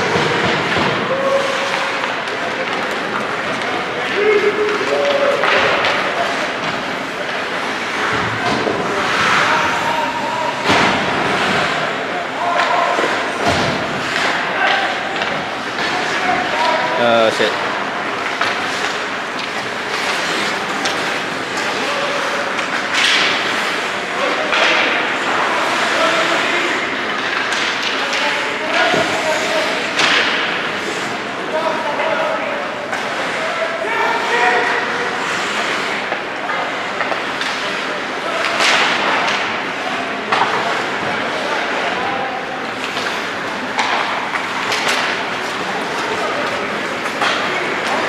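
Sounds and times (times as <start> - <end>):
skate blades scraping ice: 0.0 - 31.8, 32.6 - 39.0
sharp hockey clacks: 18.0 - 29.2, 42.8 - 48.0
skates hissing on ice: 35.0 - 36.1.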